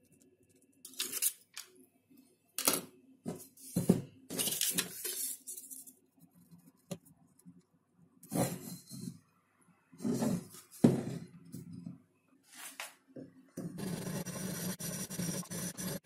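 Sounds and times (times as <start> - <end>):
pen scratching on paper: 13.8 - 16.0.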